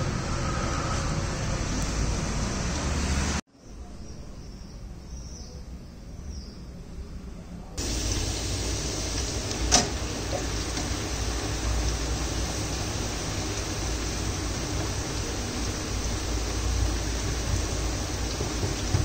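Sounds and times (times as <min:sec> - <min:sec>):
street traffic noise: 0:00.0 - 0:19.0
fries sizzling in hot oil: 0:07.8 - 0:19.0.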